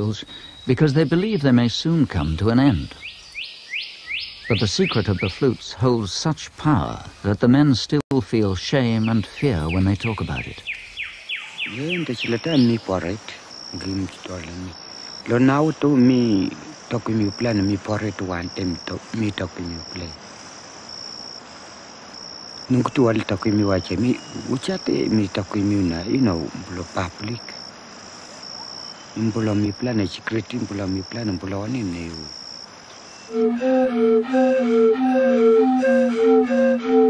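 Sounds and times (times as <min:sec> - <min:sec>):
man speaking: 0:00.0 - 0:03.0, 0:04.5 - 0:10.6, 0:11.7 - 0:20.2, 0:22.7 - 0:27.6, 0:29.2 - 0:32.3
insect chirping: 0:00.0 - 0:37.0.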